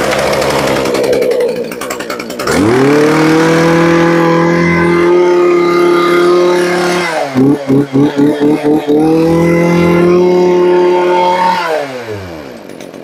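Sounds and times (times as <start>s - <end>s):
brush cutter engine revving: 0.0s - 13.0s.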